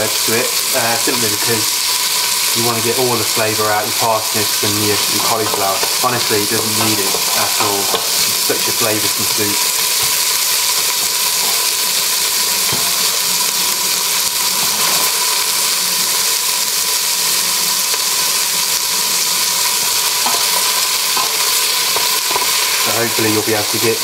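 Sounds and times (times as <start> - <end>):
vegetables sizzling in a pot: 0.0 - 24.0
wooden spatula stirring and scraping: 4.6 - 8.4.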